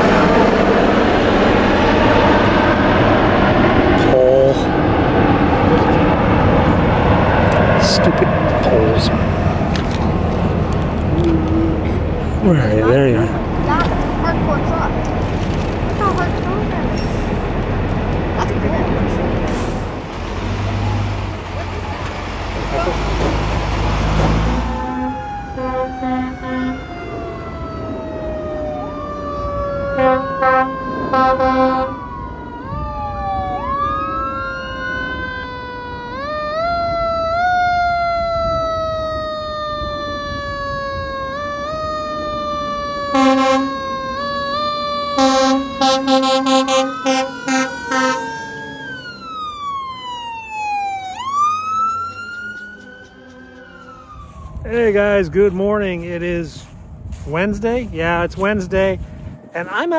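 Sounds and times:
fire truck sirens wailing: 0:00.0 - 0:55.6
rapid horn blasts: 0:24.8 - 0:26.9, 0:30.0 - 0:32.0, 0:43.1 - 0:43.8, 0:45.2 - 0:48.6.

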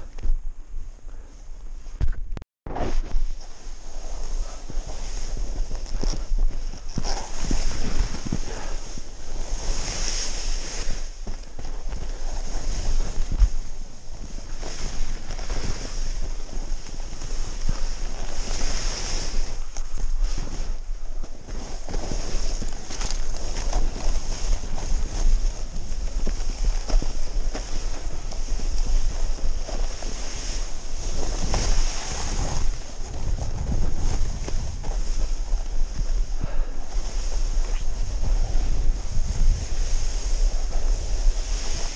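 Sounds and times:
wind on microphone: 0:00.0 - 0:41.9
snowboard scraping through snow: 0:02.7 - 0:41.9.

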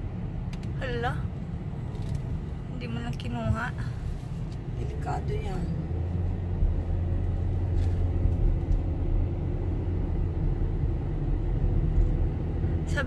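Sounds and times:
car engine and tyre rumble: 0:00.0 - 0:13.0.

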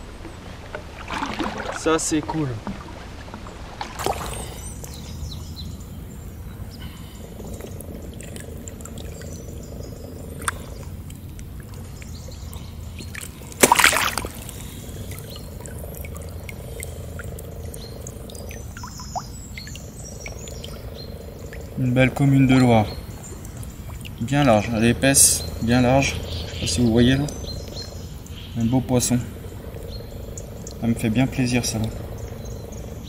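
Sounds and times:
water trickling and sloshing: 0:00.0 - 0:33.0
loud splash: 0:01.0 - 0:02.2, 0:03.7 - 0:04.6, 0:13.2 - 0:14.5
small drips and clicks: 0:02.6 - 0:33.0.

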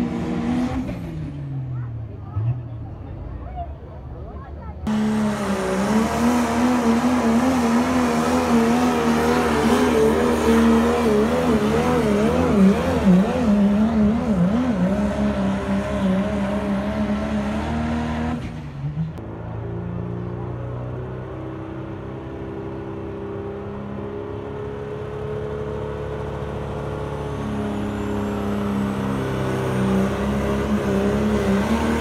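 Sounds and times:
pickup truck engine at full throttle: 0:04.8 - 0:18.4, 0:20.4 - 0:32.0.

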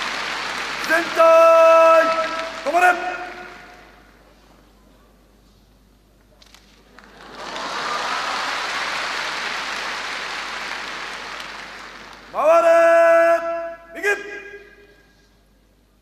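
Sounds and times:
audience applause: 0:00.0 - 0:04.0, 0:06.9 - 0:12.4.

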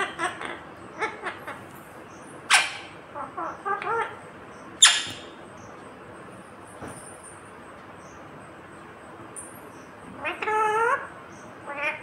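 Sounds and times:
parakeet squawks: 0:00.0 - 0:01.6, 0:02.4 - 0:04.2, 0:04.8 - 0:05.4, 0:10.2 - 0:12.0
parakeet chattering: 0:00.0 - 0:05.4, 0:10.2 - 0:12.0.

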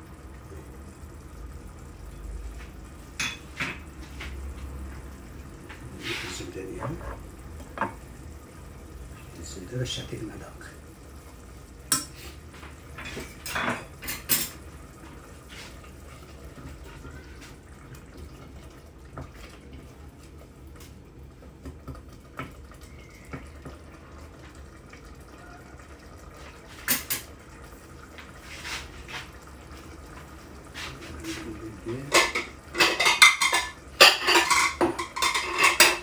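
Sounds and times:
utensils clinking against dishes: 0:13.0 - 0:14.6, 0:31.3 - 0:36.0.

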